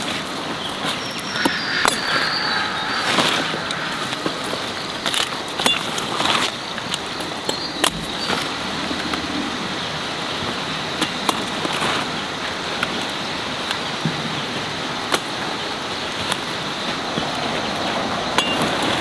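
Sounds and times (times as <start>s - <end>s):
steady outdoor hiss: 0.9s - 5.6s.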